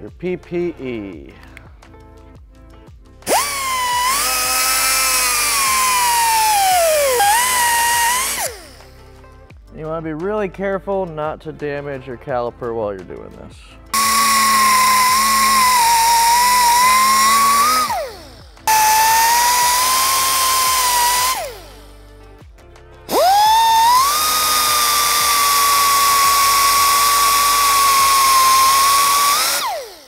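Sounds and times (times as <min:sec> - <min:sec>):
pneumatic cut-off tool whining: 0:03.2 - 0:09.0, 0:14.0 - 0:22.0, 0:23.1 - 0:30.0.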